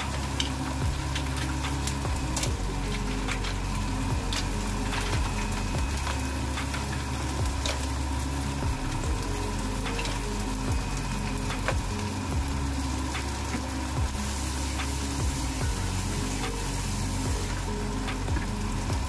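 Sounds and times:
mussels sizzling in a hot pan: 0.0 - 19.0.

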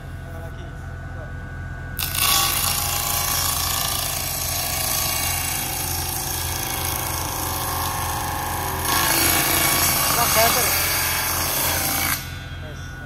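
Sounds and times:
saw motor low hum: 0.0 - 13.0
table saw cutting plywood: 2.0 - 12.4.

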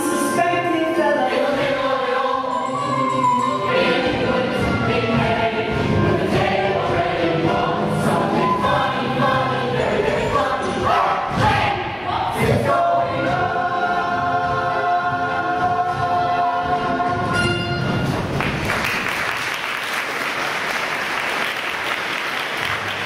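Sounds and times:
audience applause: 18.3 - 23.0.

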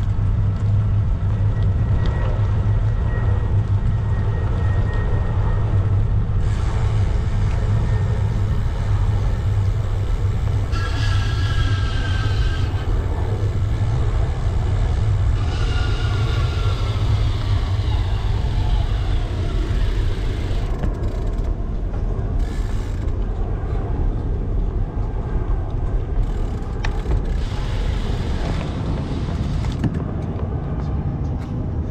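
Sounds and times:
bicycle creaking and ratcheting: 0.0 - 30.4
wind rumble on microphone: 0.0 - 31.9
high falling squeals: 6.7 - 20.8.

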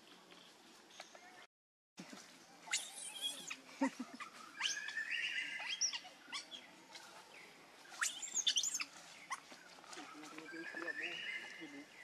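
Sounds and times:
animal chirps and squeaks: 2.6 - 7.2, 7.9 - 11.7.

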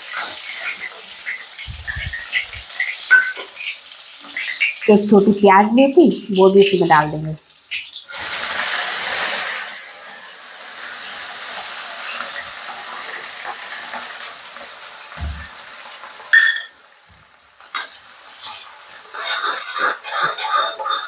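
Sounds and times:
spoon scraping a pan: 0.0 - 5.1, 17.7 - 21.0
onion sizzling in hot oil: 0.0 - 21.0.

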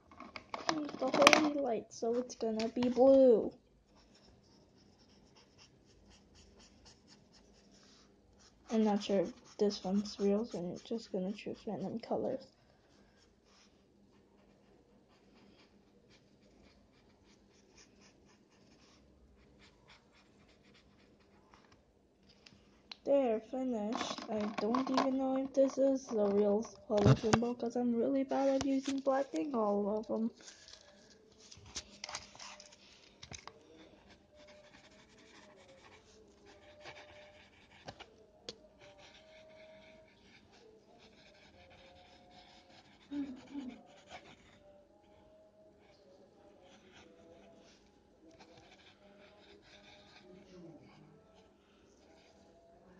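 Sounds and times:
pen scribbling on paper: 3.9 - 12.2, 14.4 - 21.4, 24.0 - 27.4, 34.0 - 38.1, 38.8 - 44.7, 48.3 - 50.6.

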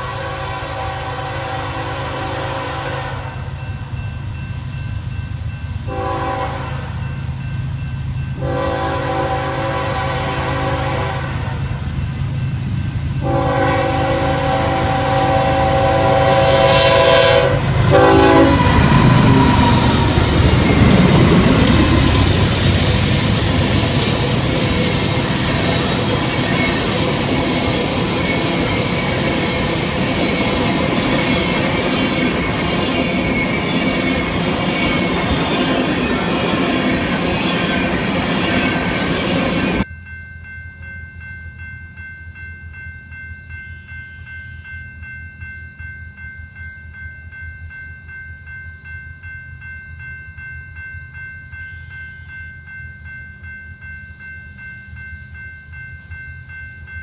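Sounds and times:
train air horn blasts: 0.0 - 3.5, 5.9 - 7.0, 8.4 - 11.7, 13.2 - 20.4
diesel locomotives passing: 0.0 - 39.9
steady high tones: 15.2 - 57.0
train wheels clicking over rail joints: 17.6 - 39.8.

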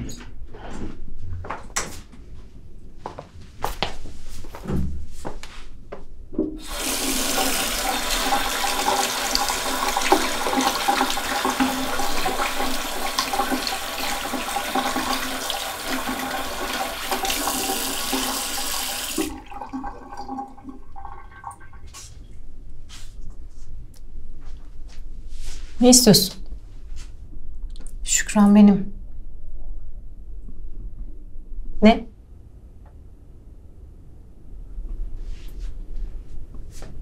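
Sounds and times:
tap running into washbasin: 6.4 - 21.9.

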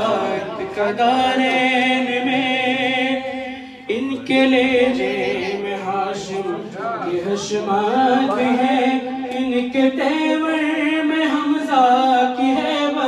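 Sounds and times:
man singing with vibrato: 0.0 - 13.0.

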